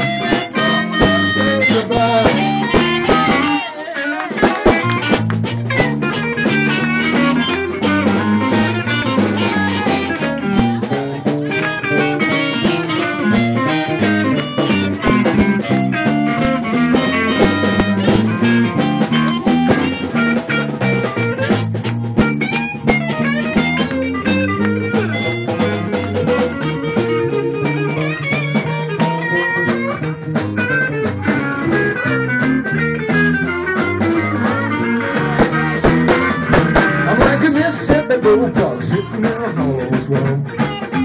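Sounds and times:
live band instrumental guitar: 0:00.0 - 0:41.0
walking bass line: 0:00.0 - 0:41.0.

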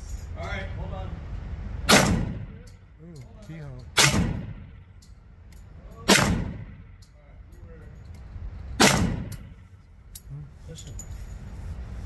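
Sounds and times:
gunshots with reverberant tail: 0:01.9 - 0:02.7, 0:04.0 - 0:04.8, 0:06.1 - 0:06.9, 0:08.8 - 0:09.6.

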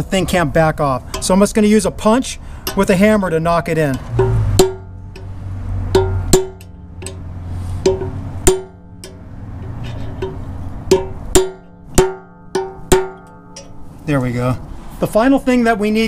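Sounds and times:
hammer striking steel punch: 0:03.8 - 0:05.3, 0:05.9 - 0:09.3, 0:10.1 - 0:13.8.

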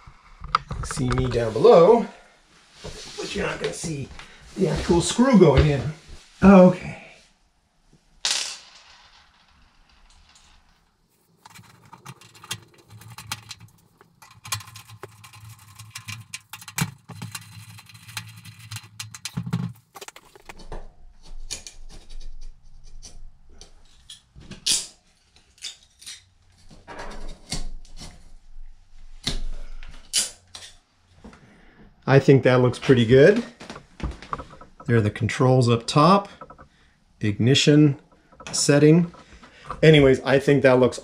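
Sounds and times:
knocks and clanks of metal: 0:11.4 - 0:20.5.

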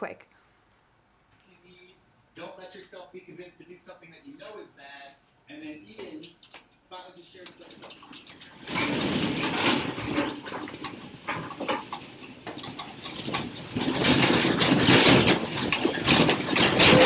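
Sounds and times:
desks and chairs clattering: 0:07.4 - 0:17.0.

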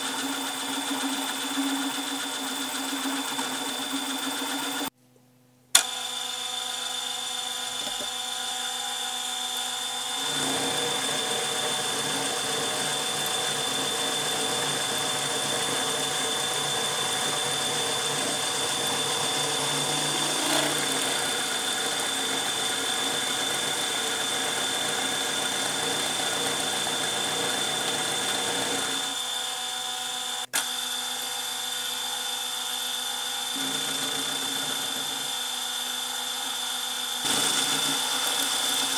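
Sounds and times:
milling machine spindle whine: 0:00.0 - 0:04.9, 0:05.8 - 0:38.9
end mill cutting steel: 0:09.2 - 0:29.4.

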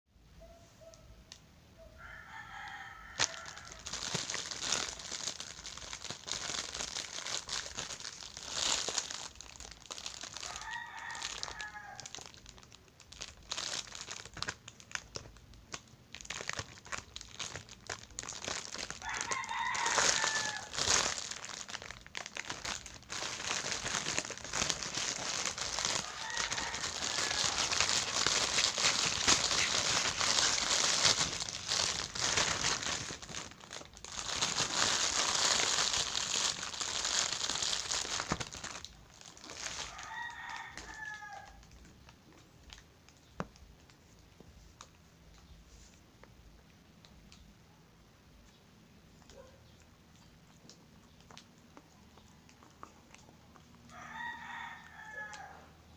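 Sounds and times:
rooster crowing: 0:01.8 - 0:03.9, 0:10.4 - 0:12.2, 0:19.0 - 0:20.8, 0:25.0 - 0:31.4, 0:39.5 - 0:41.6, 0:53.9 - 0:55.8
plastic bag crinkling: 0:02.3 - 0:45.5.

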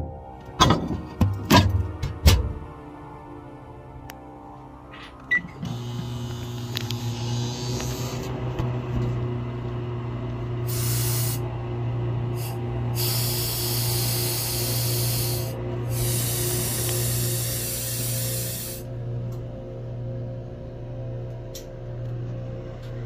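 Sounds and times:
microwave oven humming: 0:00.0 - 0:23.0
loud hissing: 0:10.7 - 0:11.4, 0:12.4 - 0:18.9.

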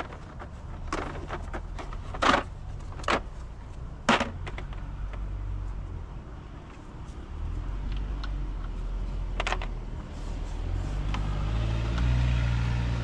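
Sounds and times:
knocks and clicks of car parts: 0:04.0 - 0:05.3.

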